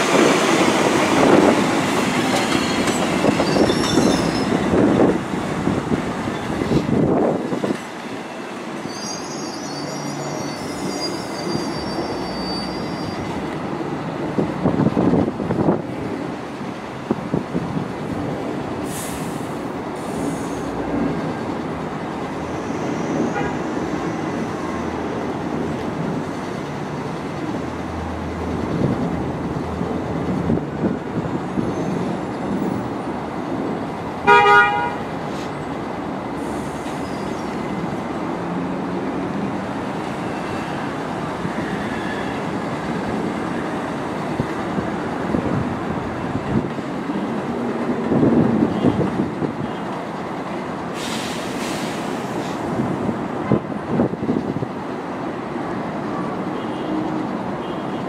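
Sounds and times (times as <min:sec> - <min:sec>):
subway train horn toot: 0:23.0 - 0:23.9, 0:34.2 - 0:35.2, 0:56.5 - 0:58.0.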